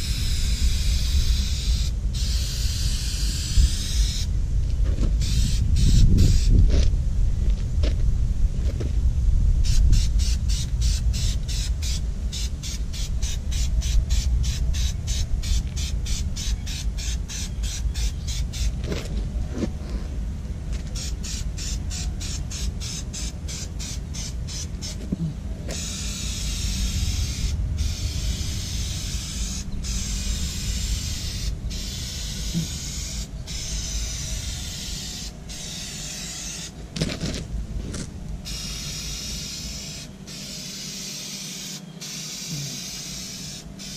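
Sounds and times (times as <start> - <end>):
aerosol spray hissing: 0.0 - 4.3, 5.2 - 6.6, 9.6 - 18.8, 21.0 - 25.0, 25.7 - 36.7, 38.5 - 43.9
low background rumble: 0.0 - 43.9
spray can rattling: 20.9 - 25.0, 25.7 - 37.3, 38.5 - 43.9.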